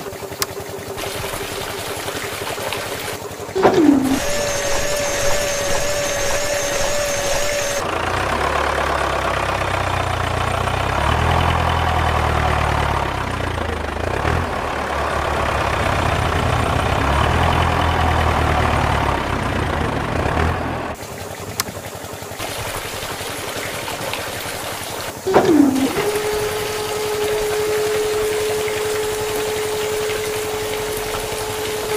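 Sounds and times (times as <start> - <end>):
water spraying: 0.0 - 7.8, 21.0 - 31.9
water trickling: 0.0 - 7.8, 21.0 - 31.9
electric water pump whining: 0.0 - 31.9
tractor engine running: 0.0 - 31.9.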